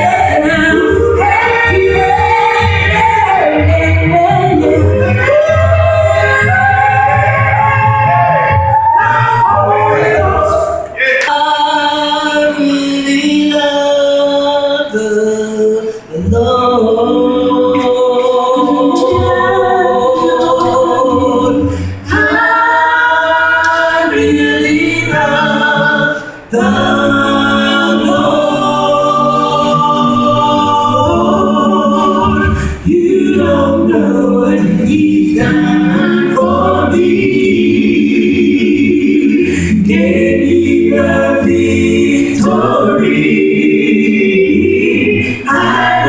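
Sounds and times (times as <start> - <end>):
gospel group singing a cappella: 0.0 - 46.0.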